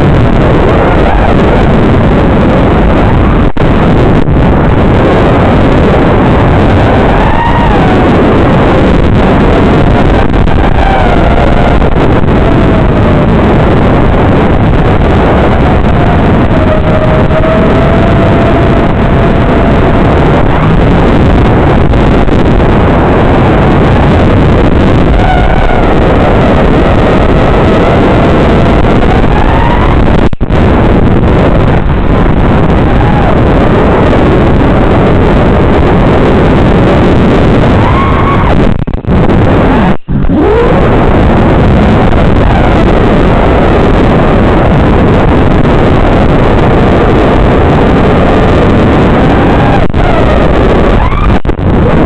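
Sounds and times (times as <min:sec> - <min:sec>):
drone motor whine: 0:00.0 - 0:52.0
prop wash and wind rushing: 0:00.0 - 0:52.0.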